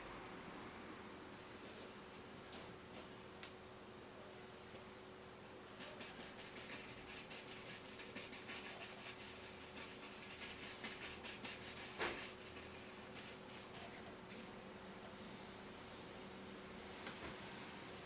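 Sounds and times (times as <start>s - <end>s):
paintbrush scratching on canvas: 5.8s - 14.0s.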